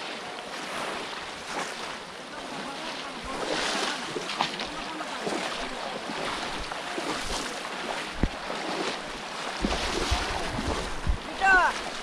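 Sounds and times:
shallow water splashing: 0.0s - 12.0s
wind rumble on microphone: 6.3s - 8.8s, 9.5s - 12.0s.

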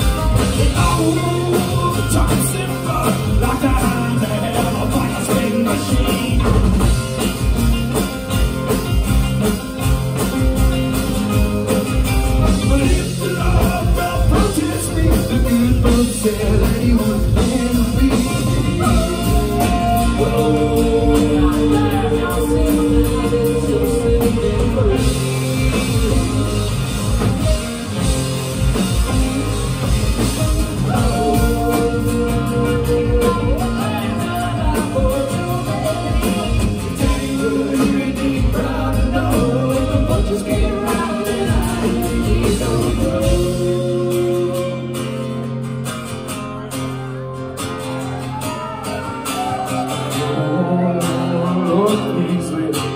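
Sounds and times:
lead vocal singing: 0.0s - 7.2s, 12.3s - 45.2s, 48.6s - 52.9s
acoustic guitar: 0.0s - 52.9s
drums: 0.0s - 52.9s
electric guitar: 0.0s - 52.9s
rock band playing live: 0.0s - 52.9s.

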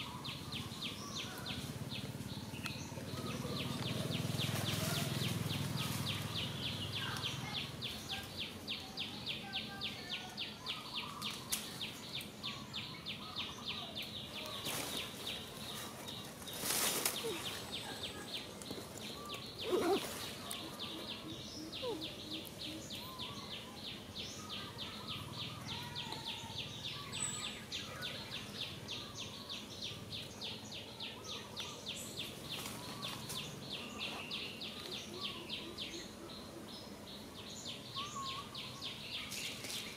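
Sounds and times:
forest ambience: 0.0s - 39.9s
faint bird calls: 16.6s - 29.6s.

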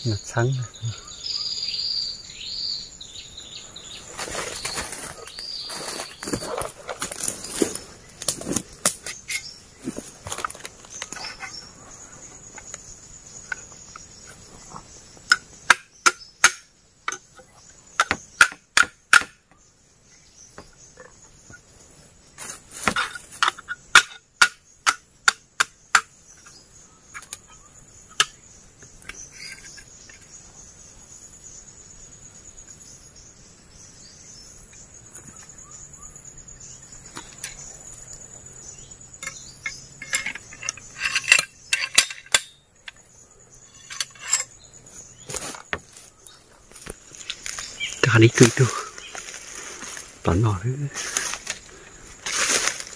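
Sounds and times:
high insect drone: 0.0s - 52.9s
bamboo sticks knocking: 15.3s - 19.6s, 22.8s - 26.1s.

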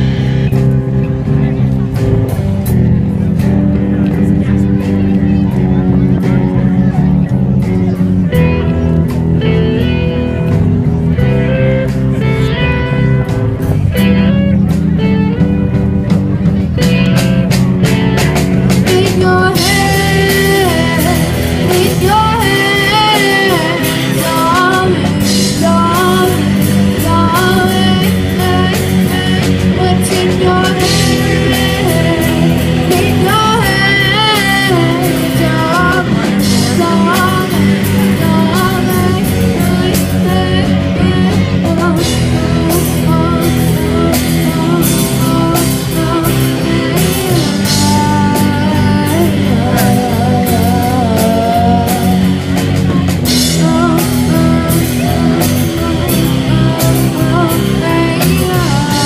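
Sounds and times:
drum kit: 0.0s - 59.0s
electric guitars: 0.0s - 59.0s
girl singing: 18.8s - 59.0s.

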